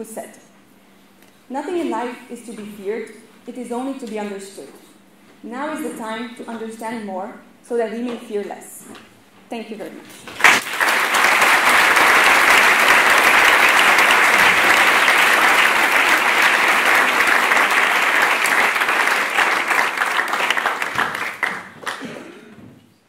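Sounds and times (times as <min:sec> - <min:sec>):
audience applauding: 0:10.4 - 0:22.3.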